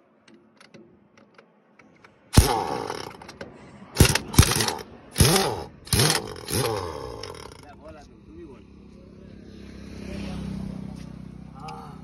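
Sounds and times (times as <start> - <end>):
power wrench whirring and hissing: 2.3 - 3.4, 4.0 - 7.6.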